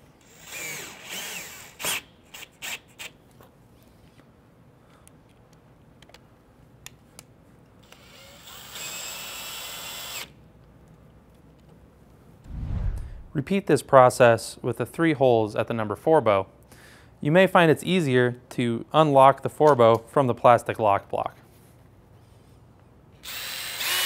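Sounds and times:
cordless drill whining: 0.2 - 2.0, 7.8 - 10.3, 23.2 - 24.0.

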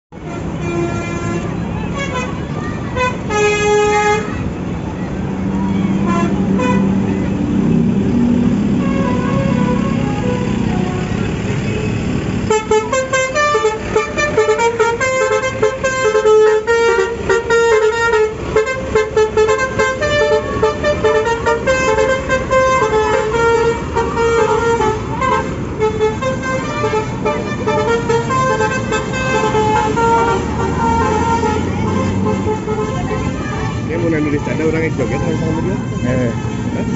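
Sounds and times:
musical air horn melody: 3.0 - 4.4, 8.7 - 11.2, 12.5 - 36.9.

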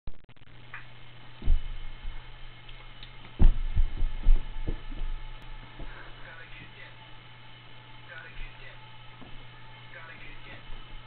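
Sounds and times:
low hum: 0.1 - 11.0
child stomping on carpet: 1.4 - 2.4, 3.1 - 6.0, 9.2 - 9.5.

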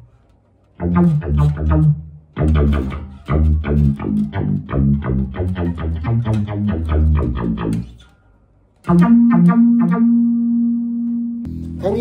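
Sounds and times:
plucked electric bass notes: 0.7 - 8.1, 8.8 - 12.0.

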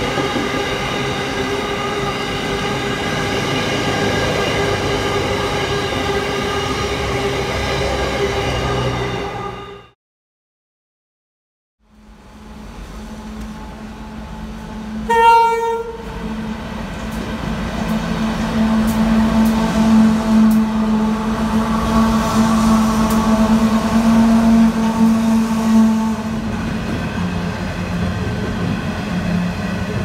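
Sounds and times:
locomotive engine drone: 11.8 - 30.0
train horn blast: 13.1 - 16.4, 18.1 - 26.5.

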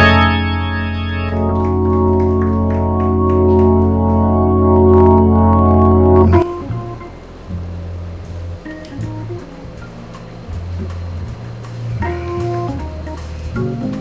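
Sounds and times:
organ chords: 0.0 - 14.0.

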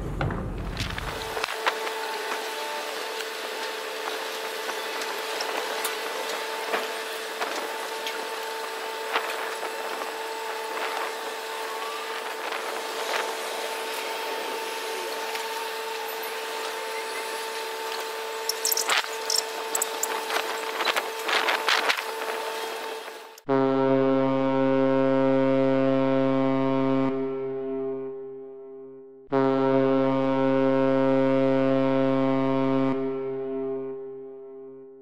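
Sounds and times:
machinery hum with whine: 0.0 - 23.7.

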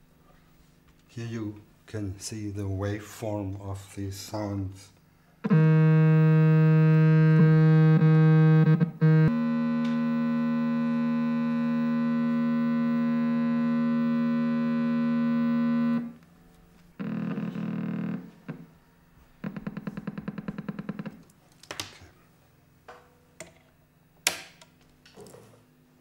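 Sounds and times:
buzzy electronic tone: 5.4 - 16.2, 17.0 - 18.8, 19.4 - 21.2
harsh electronic tone: 5.4 - 16.2, 17.0 - 18.7, 19.4 - 21.2
electronic clicks: 19.4 - 21.4.

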